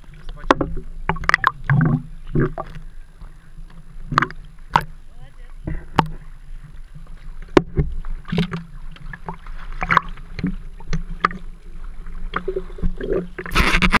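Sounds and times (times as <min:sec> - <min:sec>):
small waves splashing: 0:00.0 - 0:13.9
low steady hum: 0:00.0 - 0:14.0
water washing over camera: 0:04.0 - 0:14.0.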